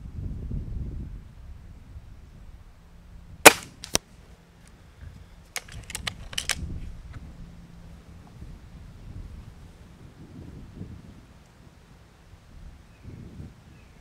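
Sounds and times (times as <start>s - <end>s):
air rifle firing crack: 3.4s - 4.0s
fainter crack: 3.5s - 4.0s.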